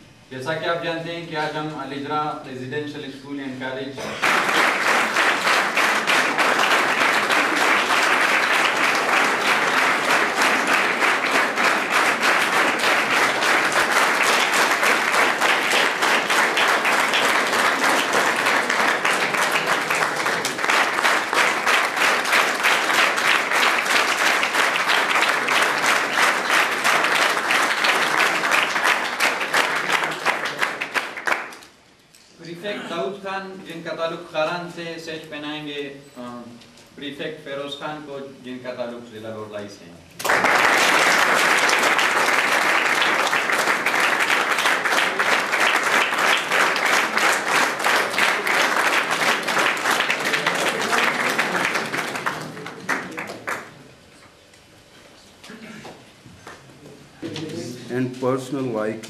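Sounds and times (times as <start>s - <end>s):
crowd applauding: 4.0s - 31.7s, 40.2s - 53.9s.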